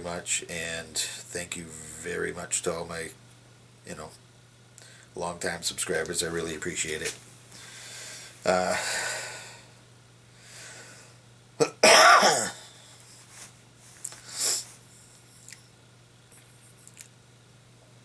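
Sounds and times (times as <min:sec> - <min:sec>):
man coughing: 0:11.6 - 0:12.7.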